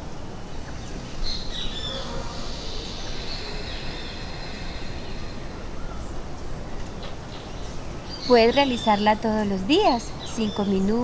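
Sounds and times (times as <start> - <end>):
birds chirping: 0.0 - 11.0
low outdoor rumble: 0.0 - 11.0.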